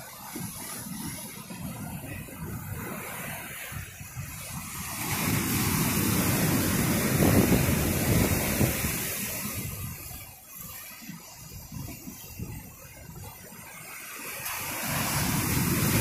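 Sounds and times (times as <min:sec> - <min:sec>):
surf breaking against rocks: 0:00.4 - 0:10.2, 0:14.3 - 0:16.0.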